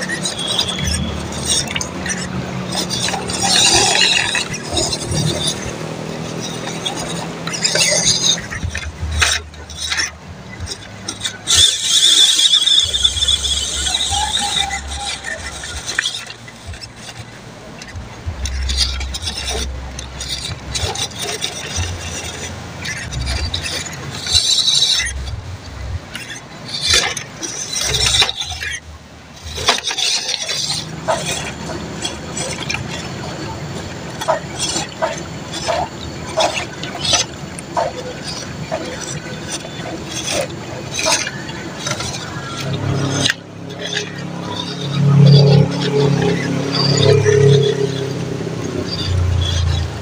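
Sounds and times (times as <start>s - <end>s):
electric motor whining: 0.0s - 50.0s
water splashing: 0.0s - 50.0s.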